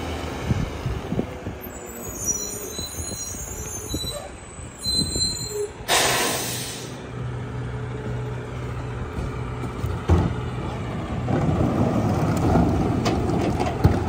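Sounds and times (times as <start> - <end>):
air brakes hissing: 1.9 - 7.0.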